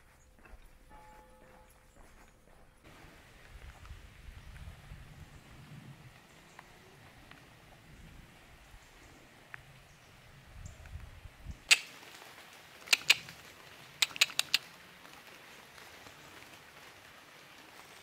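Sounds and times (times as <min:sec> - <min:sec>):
faint steady hiss: 0:02.8 - 0:18.0
low rumble: 0:02.9 - 0:11.6
sharp short clicks: 0:11.7 - 0:12.0, 0:12.9 - 0:13.4, 0:14.0 - 0:14.7.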